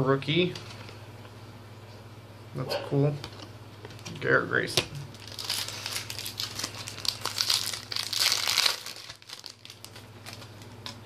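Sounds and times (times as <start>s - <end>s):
trading cards crinkling and rustling: 3.9s - 11.0s.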